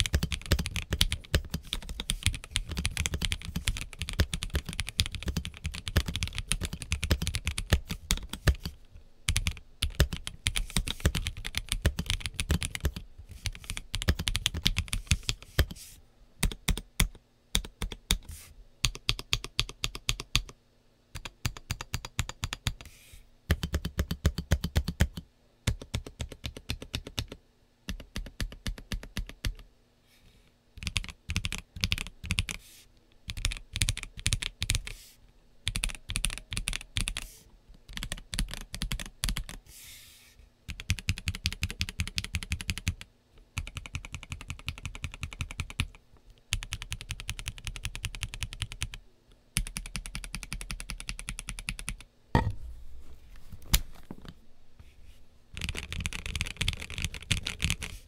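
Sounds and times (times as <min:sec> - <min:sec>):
typing on mechanical keyboard: 0:00.0 - 0:15.8, 0:16.4 - 0:20.6, 0:21.2 - 0:22.8, 0:23.5 - 0:29.6, 0:30.8 - 0:32.6, 0:33.2 - 0:34.9, 0:35.6 - 0:37.3, 0:37.9 - 0:39.6, 0:40.7 - 0:49.0, 0:49.6 - 0:52.1, 0:55.6 - 0:58.0.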